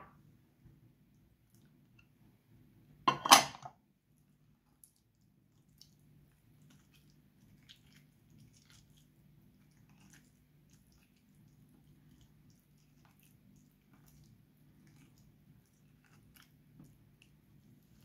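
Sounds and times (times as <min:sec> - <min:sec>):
hand squishing wet food: 0:00.2 - 0:02.4, 0:04.0 - 0:18.0.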